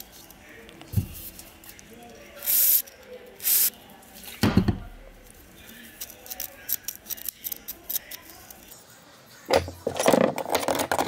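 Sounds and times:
aerosol spray hissing: 3.4 - 3.7.

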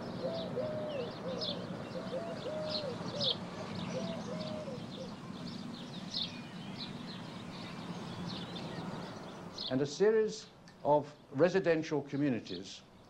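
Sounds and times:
pigeon cooing: 0.0 - 5.2
small birds chirping: 0.0 - 13.0.

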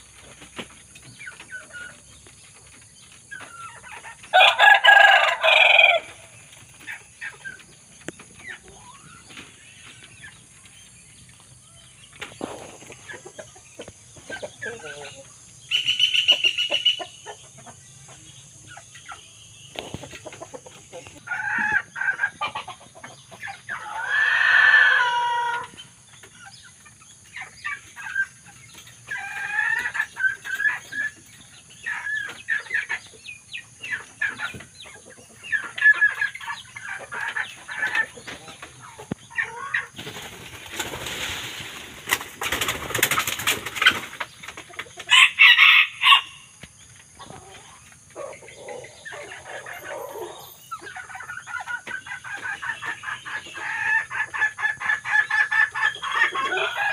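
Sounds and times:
young fowl calling and clucking: 0.0 - 56.9
rooster crowing: 4.3 - 6.3, 24.0 - 25.7, 45.1 - 46.5, 56.3 - 56.9
noisy rustling: 40.0 - 44.9.

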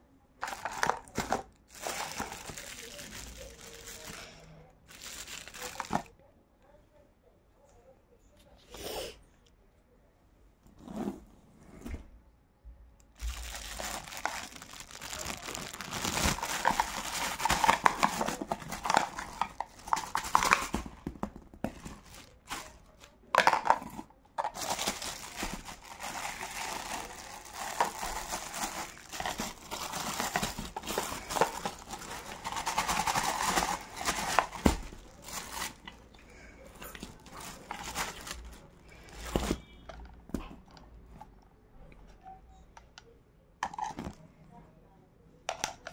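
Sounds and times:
plastic packaging crinkling: 0.4 - 6.1, 13.2 - 36.1, 36.8 - 39.7.

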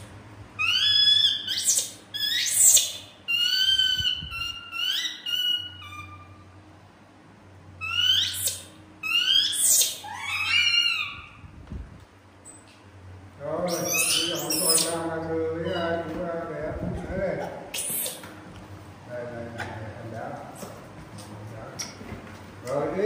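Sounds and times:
baby monkey high-pitched calls: 0.0 - 6.6, 7.8 - 11.5, 13.6 - 16.1, 17.7 - 18.3.

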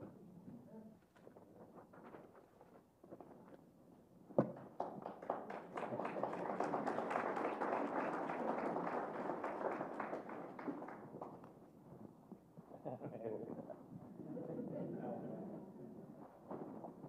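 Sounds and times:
congregation applauding: 4.6 - 11.6.

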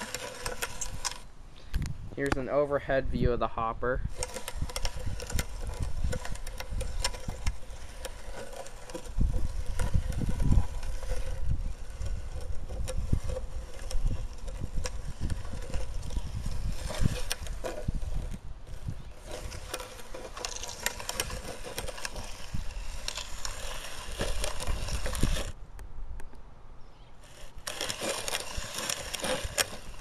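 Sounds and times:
wind buffeting microphone: 0.8 - 7.9, 9.1 - 19.7, 20.8 - 26.2.

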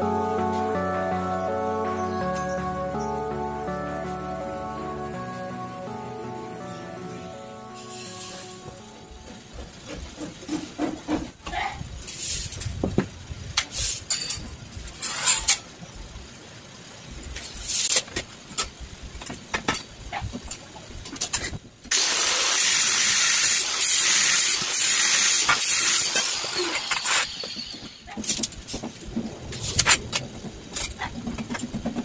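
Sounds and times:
angle grinder cutting steel tube: 21.9 - 27.6.

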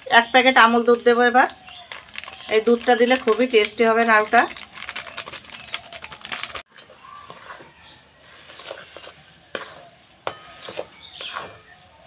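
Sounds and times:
plastic packet crinkling: 1.6 - 6.7
metal spatula scraping pan: 6.7 - 12.0
spatula clinking on pan: 9.6 - 11.7.

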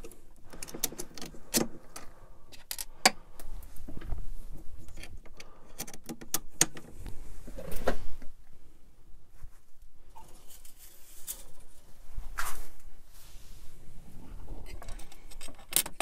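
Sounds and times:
plastic parts clicking and rattling: 0.0 - 3.2, 4.8 - 7.8, 14.6 - 16.0.

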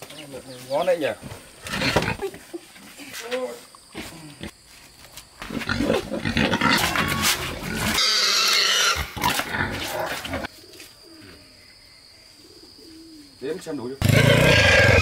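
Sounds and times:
pig squealing in distress: 5.6 - 10.5, 14.0 - 15.0.

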